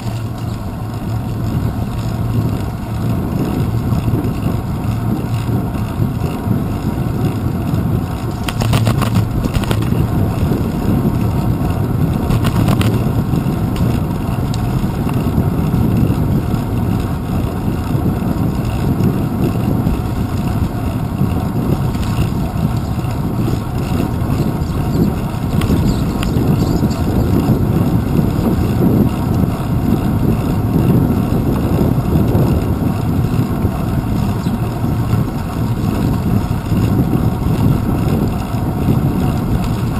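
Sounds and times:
bicycle clicks and rattles: 0.0 - 39.9
wind and road rumble: 0.0 - 39.9.

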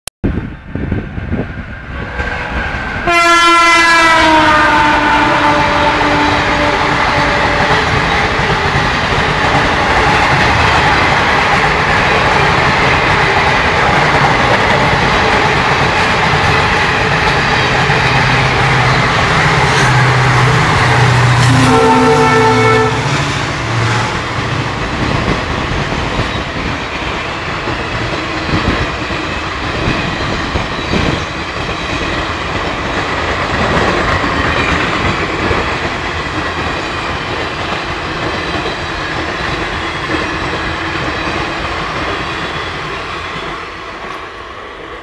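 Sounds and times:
train horn chord: 3.0 - 8.0, 18.2 - 24.2.

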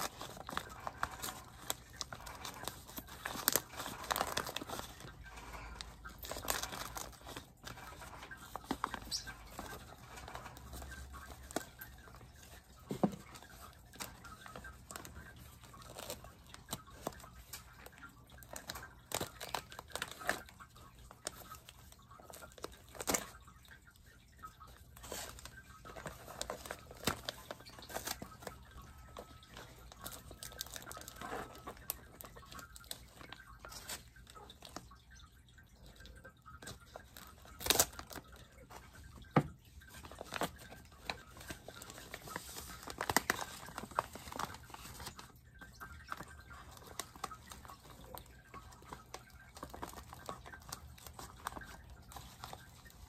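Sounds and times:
paper tearing and crinkling: 0.0 - 11.8, 40.0 - 45.2.

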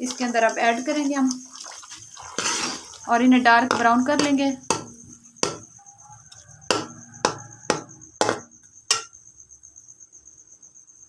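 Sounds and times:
onions sizzling in oil: 0.0 - 9.1
metal ladle scraping a pot: 0.1 - 5.7.

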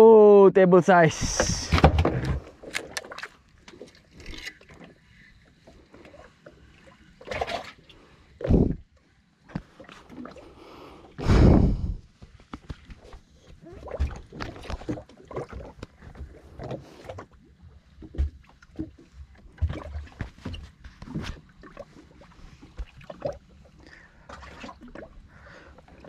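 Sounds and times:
knocks and clatter on a boat: 1.2 - 4.9, 8.4 - 8.8, 12.1 - 22.0.

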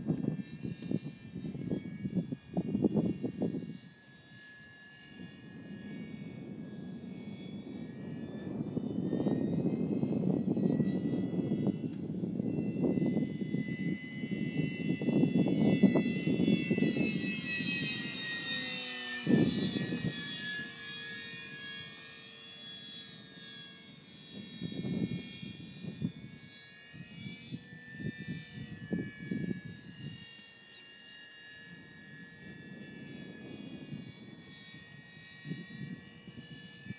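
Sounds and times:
wind rumble on microphone: 0.0 - 4.5, 5.1 - 22.0, 23.4 - 30.4, 31.6 - 36.9
model plane motor whining: 0.0 - 36.9.

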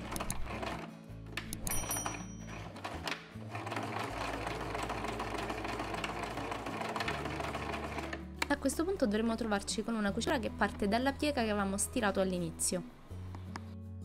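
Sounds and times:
electric sewing machine stitching: 0.0 - 0.9, 2.5 - 8.2.

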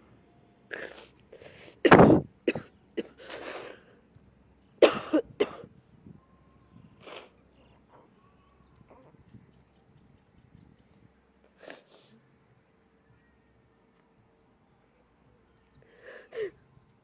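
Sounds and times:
person coughing: 1.8 - 3.7, 4.8 - 5.7.

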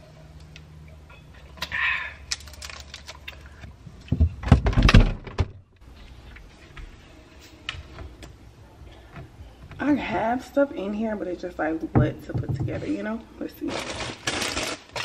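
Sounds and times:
door opening thumps and clatter: 4.1 - 5.6.

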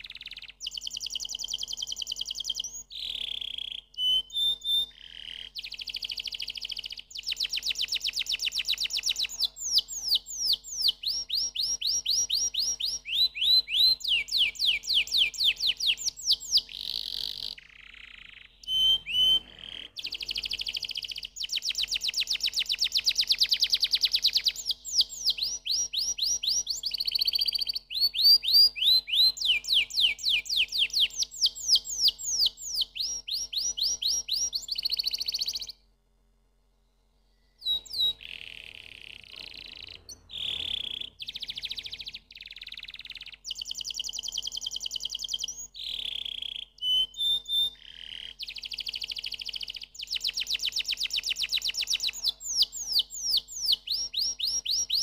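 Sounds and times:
canary singing trills: 0.0 - 35.8, 37.4 - 55.0.

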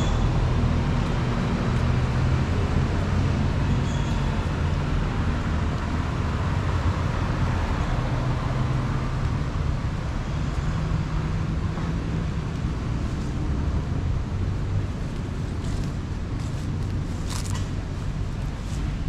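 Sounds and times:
tyre noise: 15.0 - 19.0.

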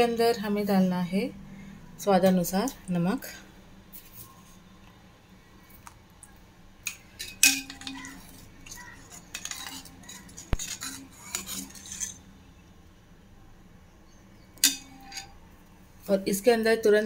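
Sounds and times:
ladle scraping metal pot: 6.9 - 12.3.

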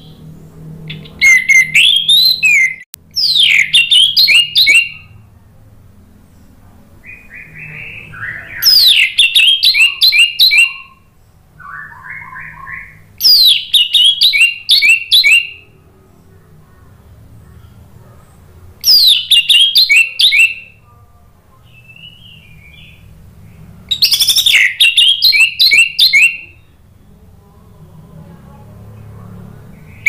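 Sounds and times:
thrush singing whistled phrases: 0.9 - 5.2, 7.0 - 15.8, 18.8 - 20.9, 21.6 - 23.1, 23.9 - 26.8.

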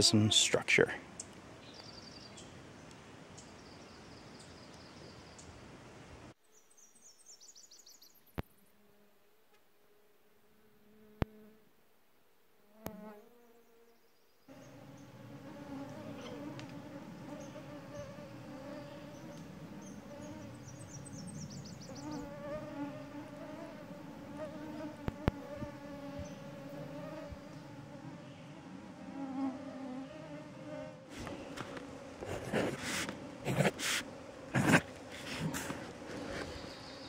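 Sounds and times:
mosquitoes whining: 14.5 - 37.0.

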